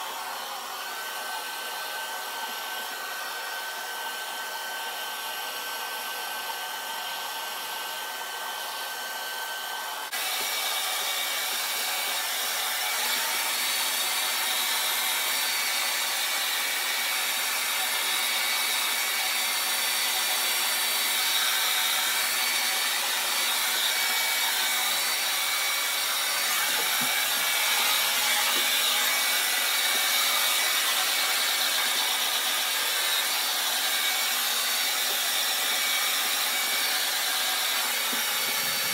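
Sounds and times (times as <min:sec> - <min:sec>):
hair dryer blowing: 0:00.0 - 0:38.9.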